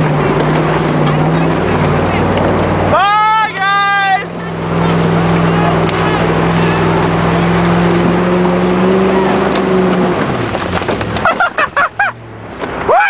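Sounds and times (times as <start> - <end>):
truck engine running hard: 0.0 - 12.5
people shouting and whooping: 2.9 - 4.6.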